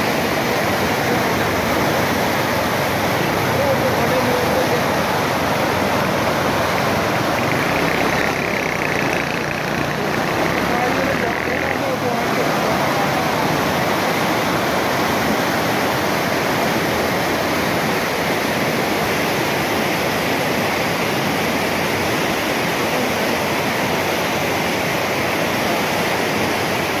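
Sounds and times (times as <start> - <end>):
floodwater rushing: 0.0 - 27.0.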